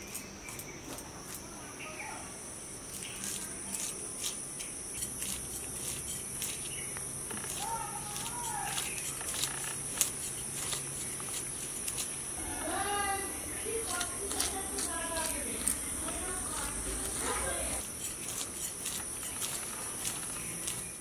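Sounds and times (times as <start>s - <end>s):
insects shrilling: 0.0s - 21.0s
fish scales scraping on blade: 2.9s - 12.2s, 13.7s - 21.0s.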